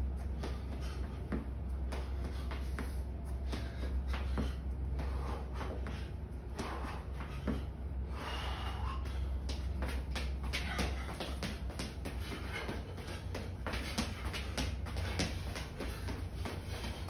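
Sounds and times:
shoes tapping on concrete: 0.0s - 7.8s, 8.8s - 17.0s
heavy breath: 0.2s - 17.0s.

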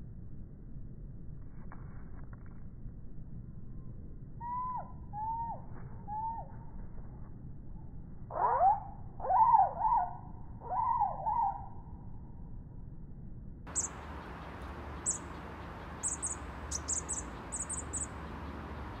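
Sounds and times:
chickadee scolding calls: 13.7s - 19.0s.

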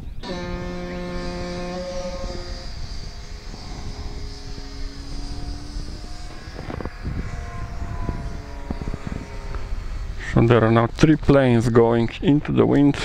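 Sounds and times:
electric model glider motors whining: 0.0s - 11.8s
wind rumble on microphone: 0.0s - 13.0s.

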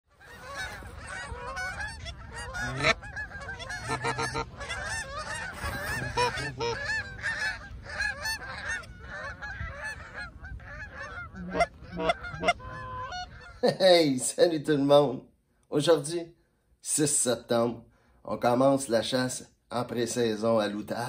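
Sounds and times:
geese honking in flight: 0.1s - 13.7s.

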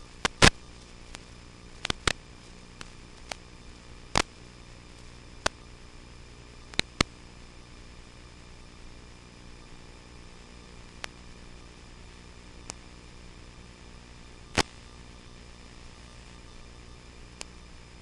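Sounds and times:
static hiss: 0.0s - 18.0s
sharp clicks and pops: 0.2s - 3.5s, 4.1s - 4.4s, 5.0s - 5.6s, 6.7s - 7.2s, 12.6s - 12.9s, 14.5s - 14.8s, 17.4s - 17.6s.

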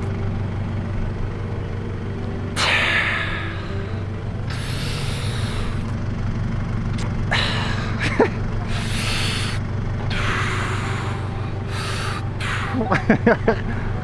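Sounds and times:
low motor hum: 0.0s - 14.0s
breathy hissing bursts: 2.6s - 5.9s, 8.7s - 12.9s.

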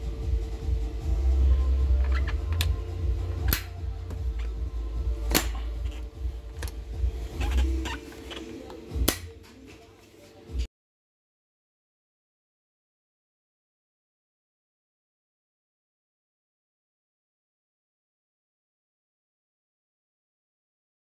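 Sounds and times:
steady low hum: 0.0s - 9.4s.

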